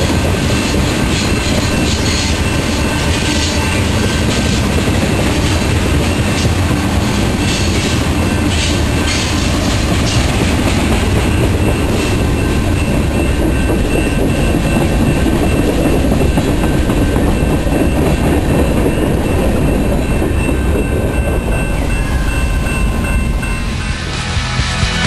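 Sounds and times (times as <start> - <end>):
freight train wheels rumbling: 0.0 - 25.0
faint high steady tones: 10.8 - 24.8.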